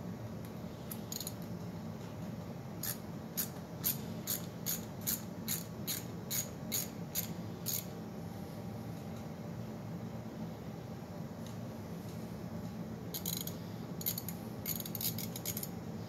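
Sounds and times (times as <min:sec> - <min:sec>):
socket ratchet clicking: 0:01.1 - 0:01.4, 0:02.8 - 0:07.9, 0:13.2 - 0:15.7.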